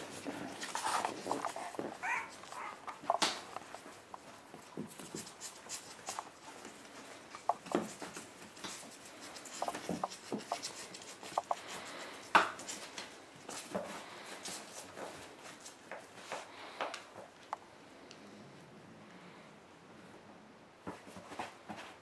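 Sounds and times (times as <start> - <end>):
puppy claws scratching: 0.0 - 16.4.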